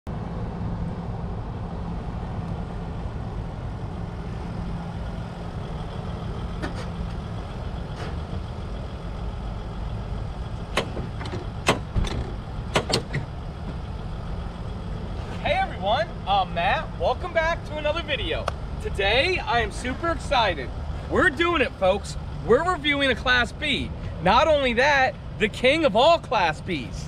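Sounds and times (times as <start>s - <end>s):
van engine low rumble: 0.1s - 27.0s
sharp knocks and clicks: 10.7s - 13.8s.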